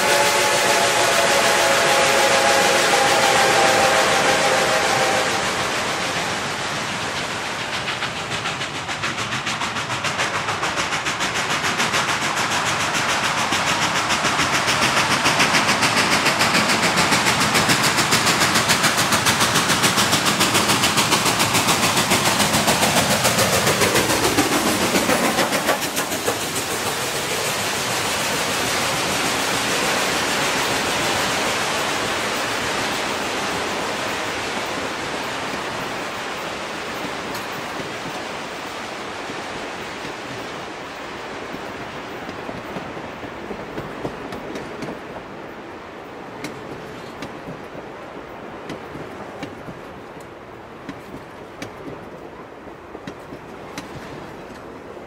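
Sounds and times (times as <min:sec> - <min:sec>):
steam whistle chord: 0:00.0 - 0:05.8
steam locomotive exhaust beats: 0:00.0 - 0:55.0
train cars rolling by: 0:00.0 - 0:55.0.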